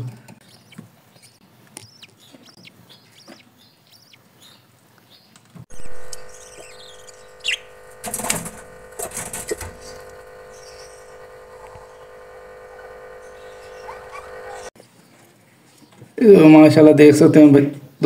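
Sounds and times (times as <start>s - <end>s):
birds rustling and scuffling: 5.4s - 16.1s
budgie chirp: 5.7s - 14.7s
steady hum: 5.7s - 14.8s.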